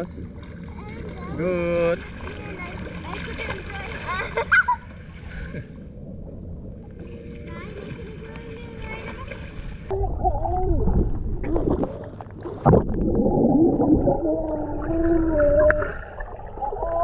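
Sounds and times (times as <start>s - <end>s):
child's voice underwater: 0.7s - 1.5s, 2.1s - 4.9s, 7.0s - 11.9s, 13.7s - 17.0s
bubbling: 8.9s - 17.0s.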